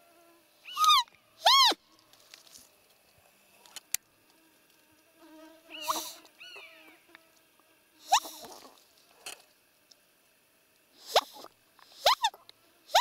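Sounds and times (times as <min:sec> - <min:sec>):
deer squeaky calls: 0:00.7 - 0:01.8.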